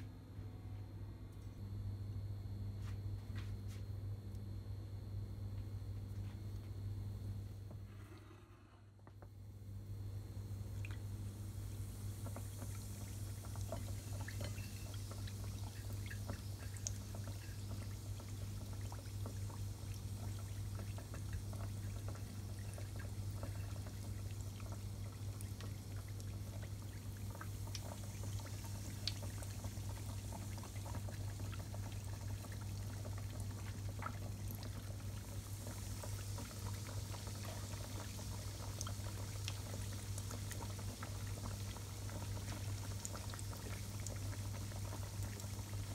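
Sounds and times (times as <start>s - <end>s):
food deep-frying in hot oil: 9.6s - 45.9s.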